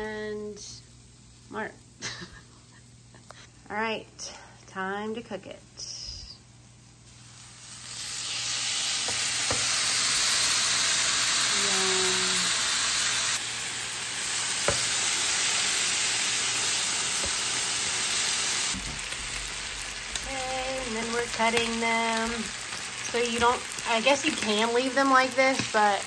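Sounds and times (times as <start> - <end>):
meat sizzling on a griddle: 7.0 - 26.0.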